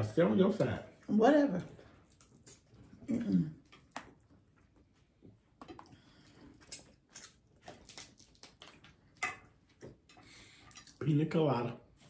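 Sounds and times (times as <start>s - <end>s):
small clicks and taps of eating: 1.6s - 11.2s.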